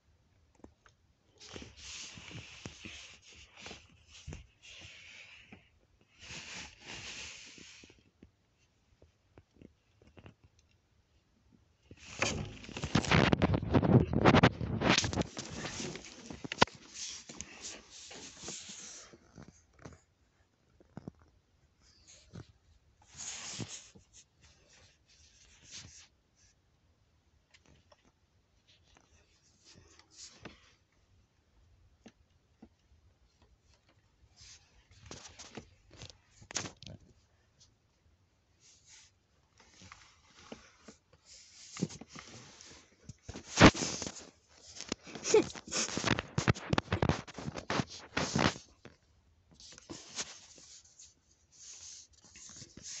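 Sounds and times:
phone rubbing against clothing: 6.2s - 8.0s, 12.0s - 19.5s, 39.7s - 48.7s
fabric rustling: 12.0s - 19.5s, 38.9s - 48.8s.

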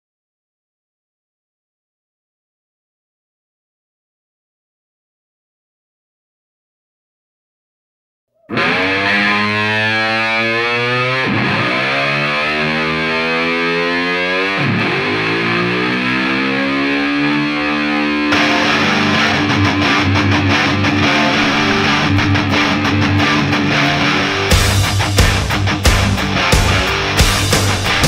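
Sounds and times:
distorted electric guitar chords: 8.4s - 28.0s
heavy guitar riff: 8.4s - 28.0s
drums: 18.3s - 28.0s.

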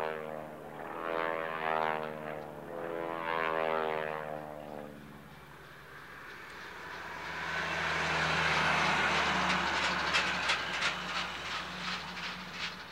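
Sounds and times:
large vehicle rushing past: 6.2s - 12.9s.

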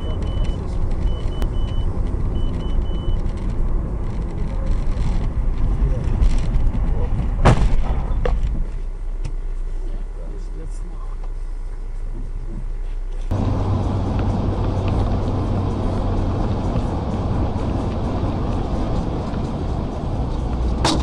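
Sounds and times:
car engine and road rumble: 0.0s - 21.0s
vehicle crash: 5.9s - 8.7s, 20.3s - 21.0s.

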